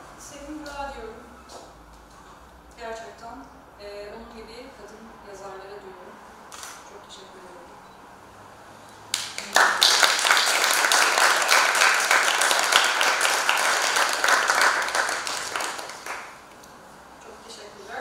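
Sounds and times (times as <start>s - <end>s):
audience applauding: 9.1s - 16.4s.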